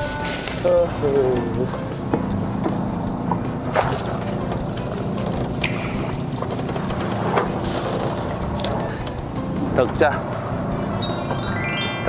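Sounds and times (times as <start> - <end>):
boat engine running: 0.0 - 11.5
water sloshing: 1.7 - 8.5.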